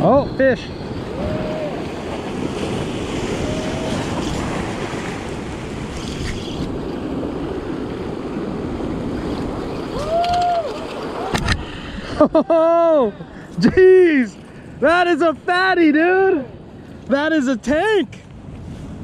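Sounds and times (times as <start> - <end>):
wind buffeting microphone: 0.0 - 12.3
surf churning over rocks: 0.0 - 17.9.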